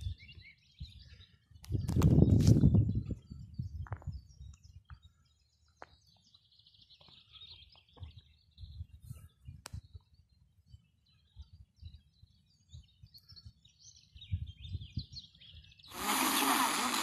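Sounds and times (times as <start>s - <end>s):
low rumble on microphone: 0.0s - 5.2s
small birds chirping: 0.0s - 17.0s.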